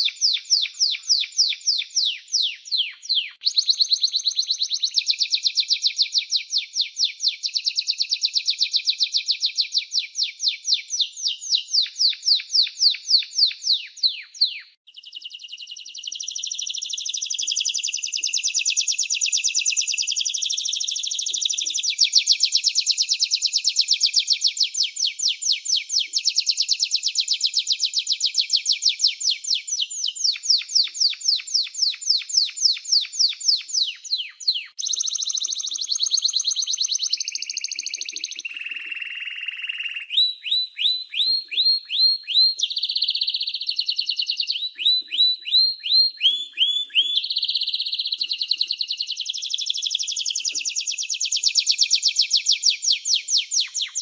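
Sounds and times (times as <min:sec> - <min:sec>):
canary singing: 0:00.0 - 0:54.0.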